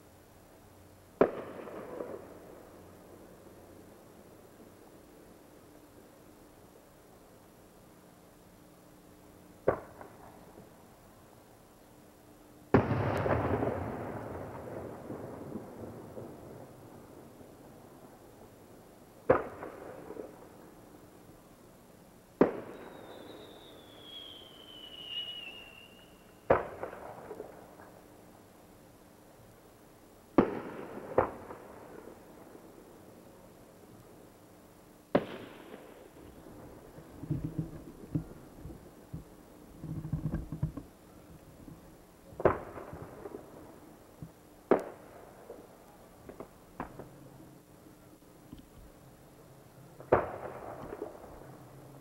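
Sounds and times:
fireworks crackles: 1.1s - 6.9s, 9.6s - 11.2s, 12.7s - 18.6s, 22.4s - 28.3s, 35.1s - 49.2s, 49.9s - 52.0s
fireworks bangs: 1.2s - 2.6s, 12.7s - 16.7s, 22.4s - 27.9s, 30.4s - 32.0s, 35.1s - 40.6s, 42.3s - 43.7s, 50.0s - 51.6s
firework whistle falling: 22.5s - 26.8s.

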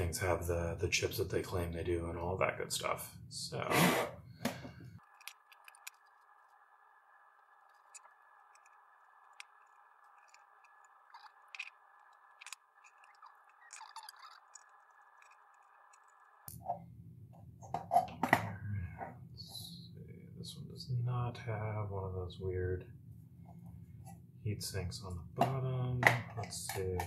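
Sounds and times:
faint steady hiss: 18.3s - 27.0s.

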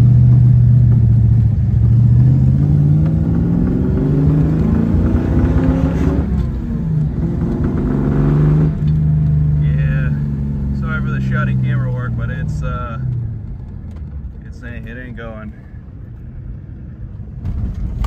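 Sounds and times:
car engine revving: 0.0s - 13.8s.

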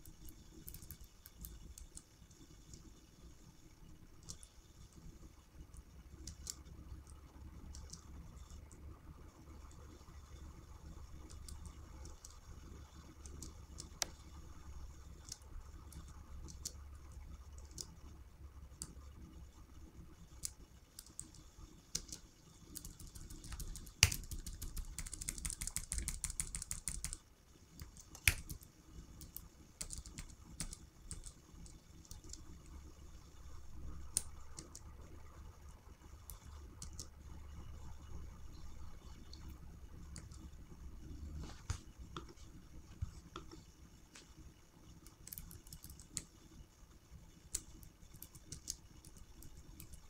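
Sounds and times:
keyboard keys tapping: 22.8s - 27.2s
low hum: 31.1s - 46.3s.

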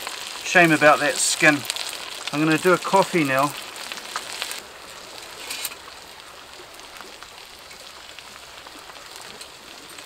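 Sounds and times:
wood fire crackling: 0.0s - 10.0s.

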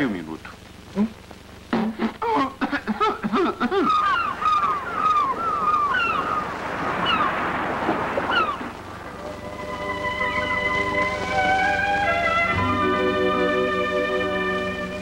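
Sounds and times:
ocean surf rushing: 2.7s - 15.0s
seagulls calling: 2.8s - 14.4s.

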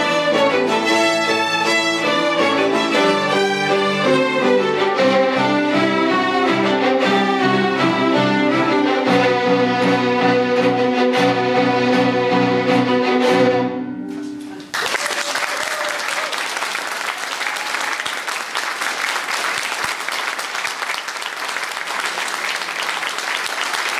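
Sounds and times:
violins and piano chord: 0.0s - 14.5s
audience applause: 14.5s - 23.9s.

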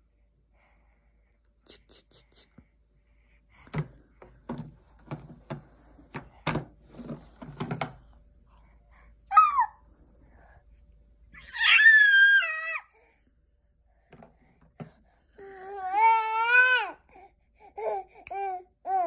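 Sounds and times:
baby squealing: 11.4s - 12.8s.

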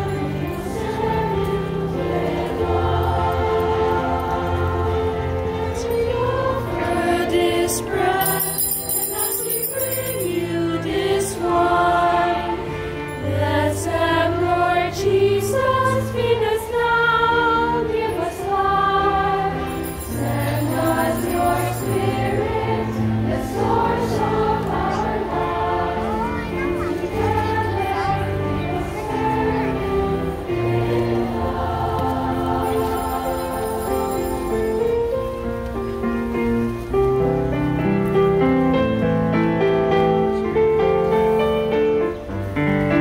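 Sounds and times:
choir singing a hymn: 0.0s - 35.4s
small bells ringing: 7.2s - 11.3s, 19.6s - 23.0s, 32.4s - 35.2s.

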